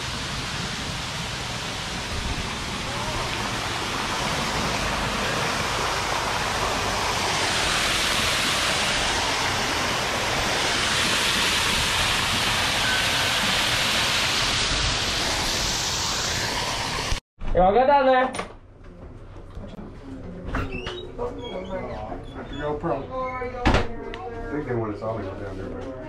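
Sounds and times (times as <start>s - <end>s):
waterfall splashing into pool: 0.0s - 17.2s.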